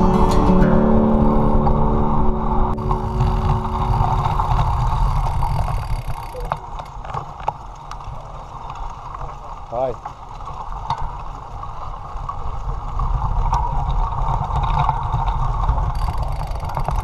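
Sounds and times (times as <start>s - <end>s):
guitar music: 0.0s - 5.5s
road rumble: 0.0s - 17.0s.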